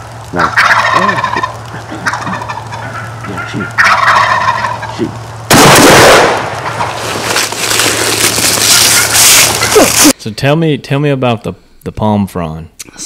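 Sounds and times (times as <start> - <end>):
turkeys gobbling: 0.3 - 7.4, 8.6 - 10.2.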